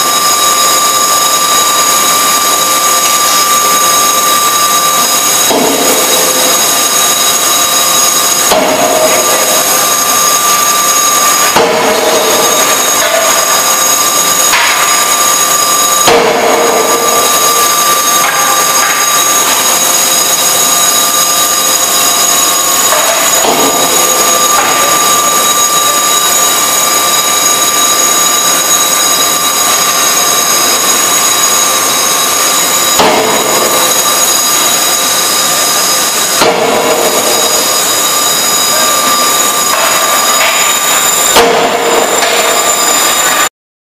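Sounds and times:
forging hammer striking steel: 0.0 - 43.5
machinery drone with whining tones: 0.0 - 43.5.

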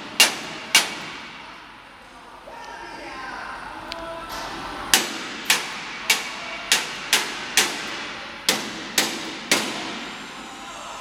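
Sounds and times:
hammer striking steel plate: 0.0 - 1.5, 4.9 - 10.2.

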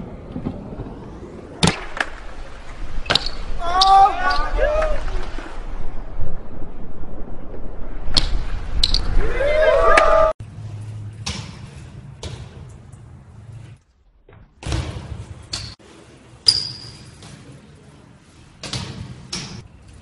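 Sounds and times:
low hum: 0.0 - 14.5
bike landing on concrete: 11.0 - 17.8, 18.4 - 20.0.

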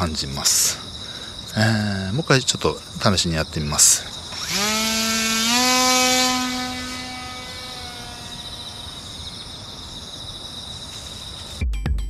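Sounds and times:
model airplane motor whining: 4.3 - 9.0.

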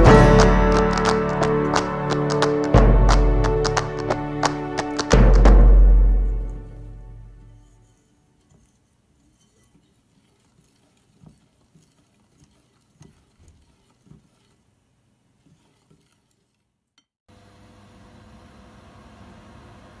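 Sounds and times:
whisk stirring batter: 7.6 - 17.1
whisk knocking against bowl: 8.5 - 14.7
stove hiss with faint hum: 11.0 - 20.0.

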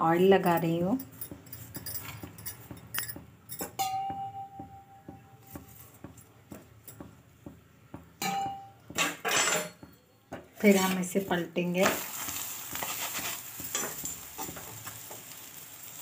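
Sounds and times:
metal clink ringing: 0.4 - 4.9, 8.2 - 10.1
spoon scraping on griddle: 10.6 - 15.4.

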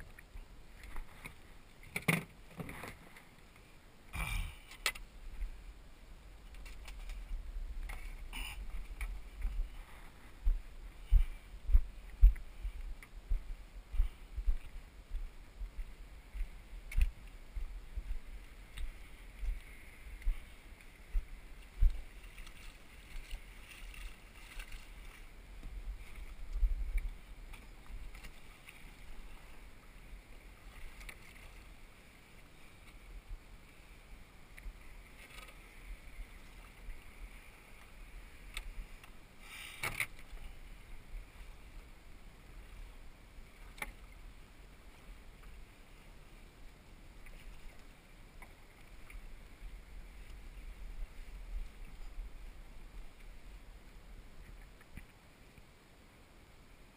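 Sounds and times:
water lapping at hull: 0.0 - 55.7
paddle strokes splashing: 16.1 - 55.2.

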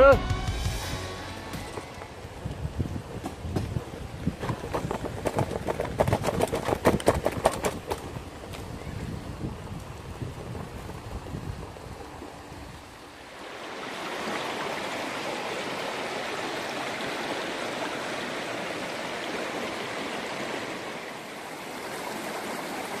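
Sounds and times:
river water rushing: 11.8 - 23.0.

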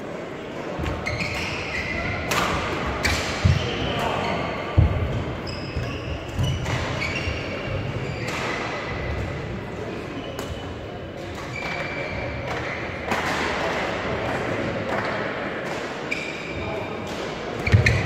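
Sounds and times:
sports shoes squeaking on floor: 0.8 - 2.2, 3.0 - 9.4, 11.4 - 12.8, 17.6 - 18.0
racket hitting shuttlecock: 2.2 - 3.7.

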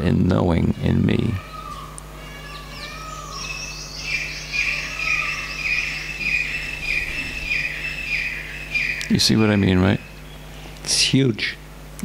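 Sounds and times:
small animal chirping: 1.4 - 10.4.

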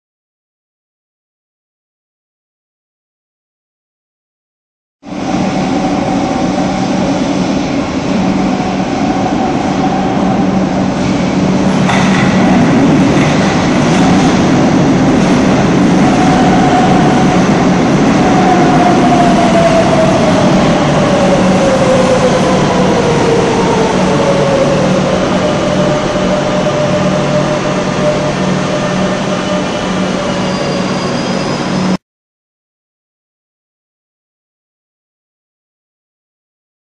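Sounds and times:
train wheels rumbling and clattering: 5.2 - 32.0.

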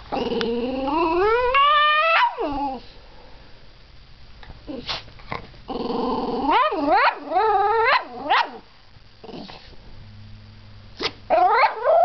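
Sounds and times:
small dog barking: 2.0 - 2.5, 6.5 - 8.6, 11.3 - 12.0.

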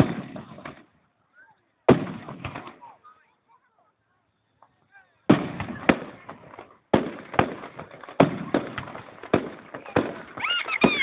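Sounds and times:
firework shells bursting: 5.3 - 11.0.

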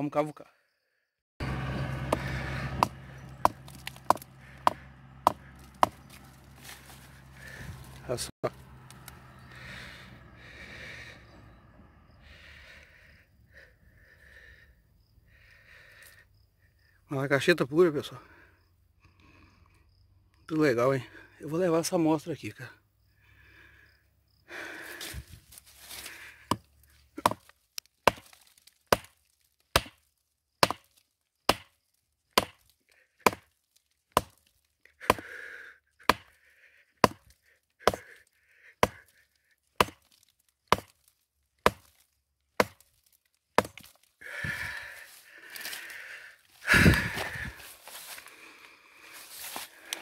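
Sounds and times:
loose earth scraping and rustling: 1.4 - 11.7, 24.8 - 34.9, 39.0 - 50.0
digging tool striking rocky earth: 1.8 - 8.1, 25.9 - 30.0, 30.6 - 33.5, 34.1 - 35.3, 36.0 - 36.3, 37.0 - 38.1, 38.8 - 39.1, 39.8 - 44.1.

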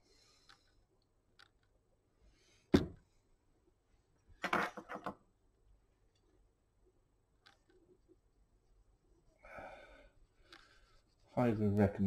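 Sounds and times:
small handling clicks: 1.3 - 1.8, 7.4 - 7.8.

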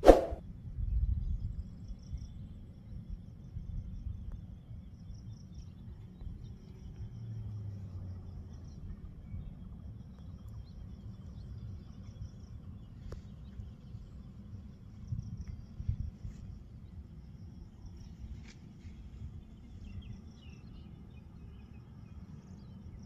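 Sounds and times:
brief low hum: 0.0 - 0.4.

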